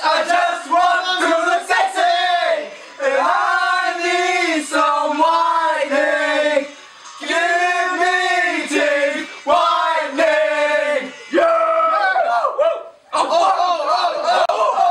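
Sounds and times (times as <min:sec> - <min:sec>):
men singing together: 0:00.0 - 0:12.0.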